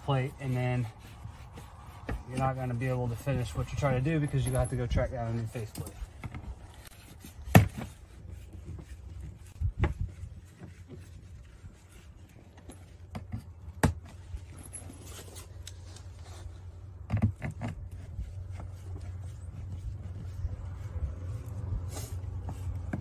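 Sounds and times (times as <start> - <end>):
steady low rumble: 17.9 - 23.0.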